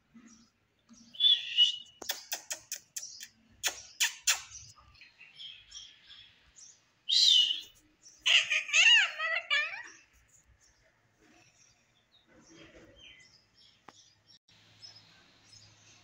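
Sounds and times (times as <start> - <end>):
parakeet harsh call: 8.2 - 10.0.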